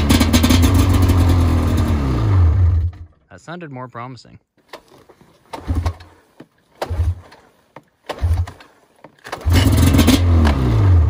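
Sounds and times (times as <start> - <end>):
snowmobile engine running: 0.0 - 2.9, 9.4 - 11.0
snowmobile engine cranking: 0.0 - 3.2, 4.6 - 11.0.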